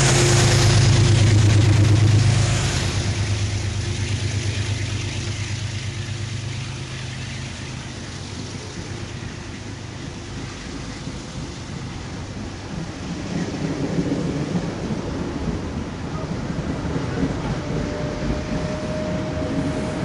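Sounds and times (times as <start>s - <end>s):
locomotive hum: 0.0s - 20.0s
train wheels rushing on rails: 0.0s - 20.0s.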